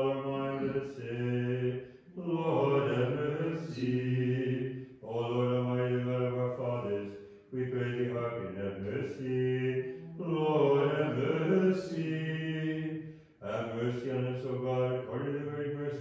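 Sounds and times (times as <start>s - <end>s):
men chanting a hymn: 0.0s - 16.0s
low sustained tone: 8.9s - 11.8s.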